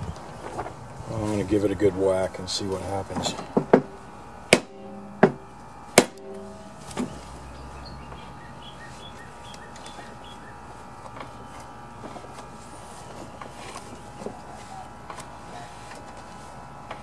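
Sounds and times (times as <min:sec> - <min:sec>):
mallet striking metal blade: 0:04.5 - 0:07.2.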